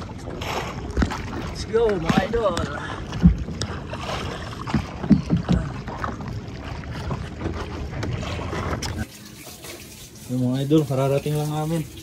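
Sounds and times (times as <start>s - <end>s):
boat engine drone: 0.0s - 9.1s
rush of water and wind: 0.0s - 9.2s
boat knocks: 0.4s - 9.0s.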